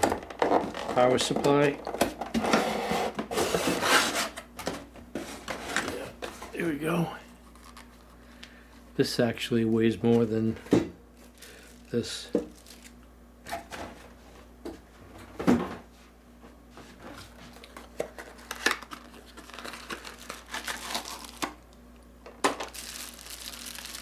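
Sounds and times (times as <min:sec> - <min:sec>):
plastic bags crinkling: 0:11.2 - 0:13.0, 0:17.6 - 0:21.7, 0:22.4 - 0:24.0.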